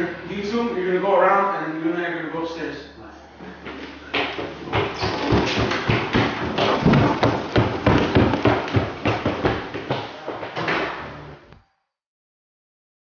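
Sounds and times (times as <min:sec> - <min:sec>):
rapid thumps and knocks: 0:04.2 - 0:11.0.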